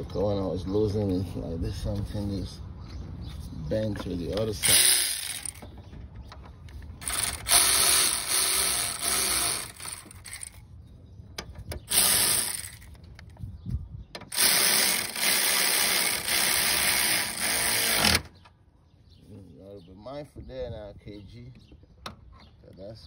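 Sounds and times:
ratchet wrench clicking: 4.6s - 5.6s, 7.0s - 10.6s, 11.9s - 12.9s.

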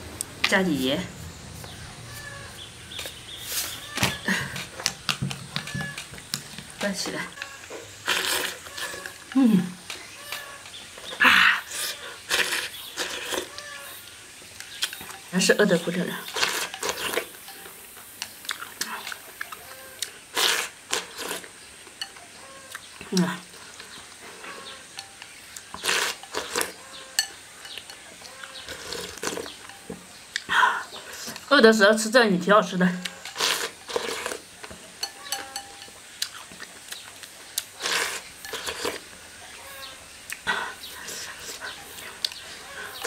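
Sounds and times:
person slurping: 8.0s - 9.8s, 11.2s - 13.5s
person chewing with small clicks: 18.2s - 21.5s, 27.7s - 30.5s, 36.2s - 39.0s, 40.3s - 42.5s.

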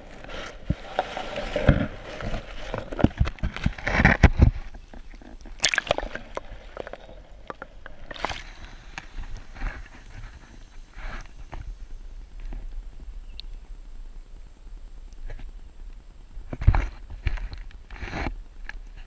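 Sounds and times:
water sloshing and dripping: 4.9s - 9.7s
water splashes: 4.9s - 10.0s.

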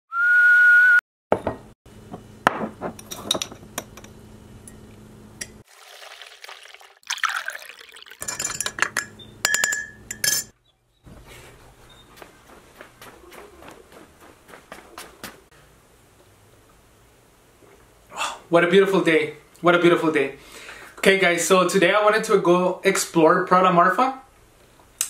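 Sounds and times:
kitchenware clinking: 2.6s - 5.6s, 8.2s - 10.6s
hot water pouring into a mug: 5.6s - 8.3s
spoon stirring in a mug: 8.2s - 10.5s.

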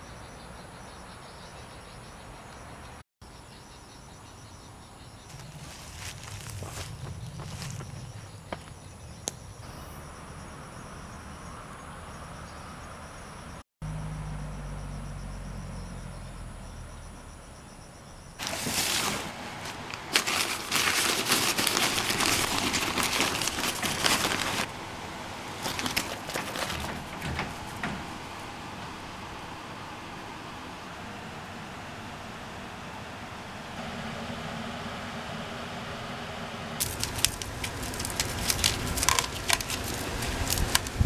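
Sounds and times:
insects trilling: 0.0s - 30.9s, 36.8s - 41.0s
dry grass crackling rustle: 5.3s - 7.8s, 18.4s - 24.8s, 25.6s - 27.8s, 36.8s - 41.0s.

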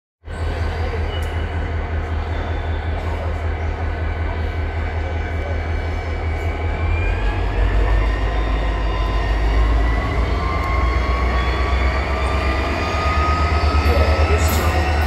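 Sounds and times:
diesel locomotive rumble: 0.2s - 15.0s
thin whine rising in pitch: 6.0s - 15.0s.

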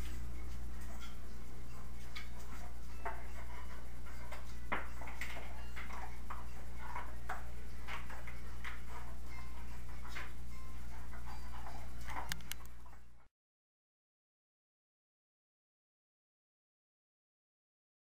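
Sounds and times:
steady low hum: 0.0s - 13.3s
dog claws clicking on tile: 11.0s - 12.8s.

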